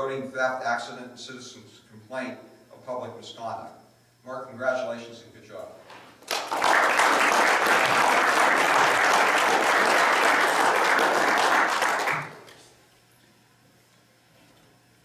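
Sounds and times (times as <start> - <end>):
audience applauding: 6.2 - 12.6.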